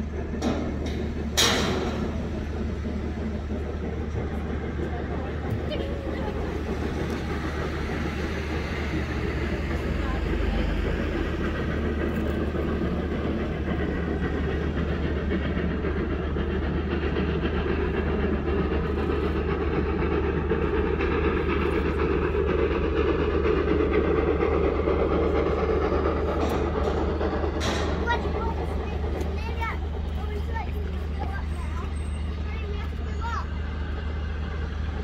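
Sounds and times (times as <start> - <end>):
steam train rumble: 0.0 - 35.0.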